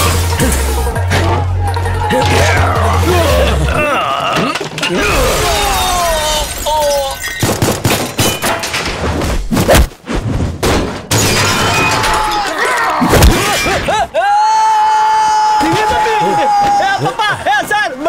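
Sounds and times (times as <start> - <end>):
background music: 0.0 - 6.3
men crying out: 1.9 - 7.2, 13.8 - 17.5
glass shattering: 4.3 - 9.0, 11.1 - 14.0.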